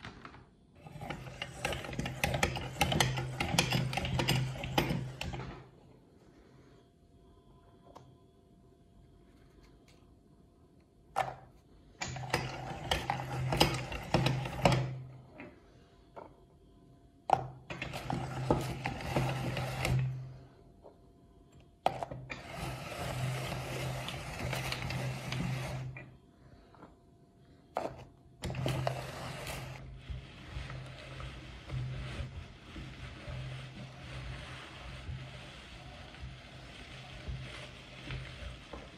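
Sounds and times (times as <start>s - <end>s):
meat grinder crunching cookies: 0.8s - 5.6s, 17.8s - 20.2s, 22.2s - 26.0s, 28.4s - 38.9s.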